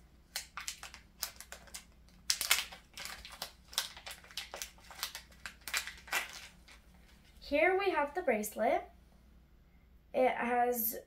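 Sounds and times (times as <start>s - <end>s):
plastic pouch crinkling: 0.3s - 7.4s.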